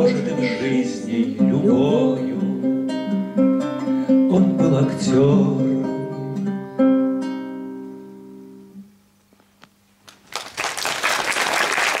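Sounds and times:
acoustic guitar chord ringing: 0.0s - 9.0s
audience applause: 10.1s - 12.0s.

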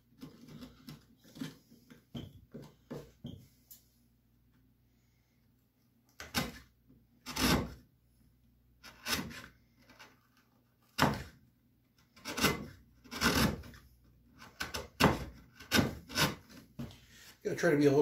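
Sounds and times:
gouge scraping wood: 7.2s - 7.8s, 8.8s - 11.3s, 12.1s - 16.7s.

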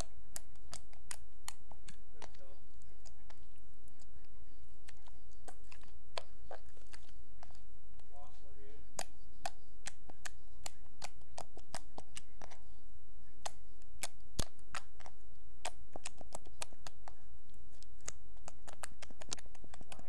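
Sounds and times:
slime clicking and popping: 0.0s - 4.1s, 8.9s - 12.6s, 13.4s - 20.0s
low steady hum: 0.0s - 20.0s.

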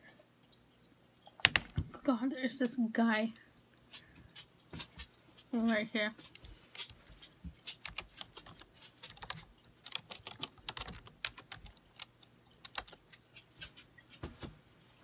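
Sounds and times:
chewing food: 3.8s - 14.2s.

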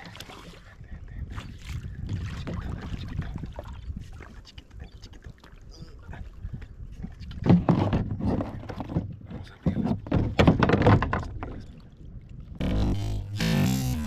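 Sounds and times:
knocking against kayak hull: 9.7s - 11.5s.

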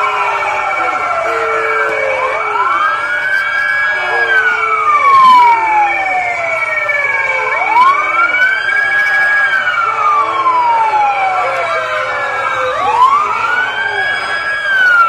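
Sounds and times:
steady high tone: 0.0s - 8.4s
police siren wailing: 0.0s - 15.0s.

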